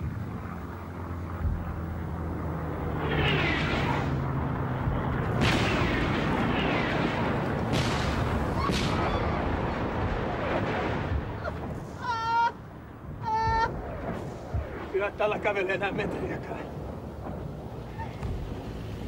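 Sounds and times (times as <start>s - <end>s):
explosions: 2.7s - 18.7s
gunfire: 5.3s - 11.6s
high-pitched cry: 12.0s - 12.6s, 13.2s - 13.8s.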